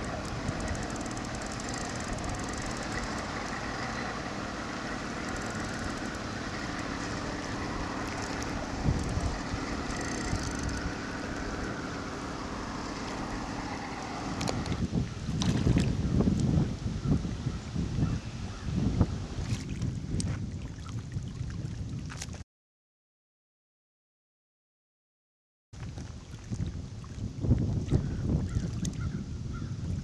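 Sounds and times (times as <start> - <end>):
rushing outdoor background noise: 0.0 - 19.8
fish thrashing and splashing: 12.8 - 16.0.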